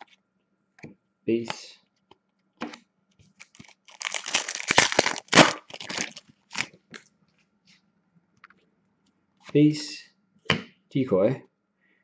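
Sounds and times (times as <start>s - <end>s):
foil wrapper tearing and crinkling: 3.4s - 6.8s.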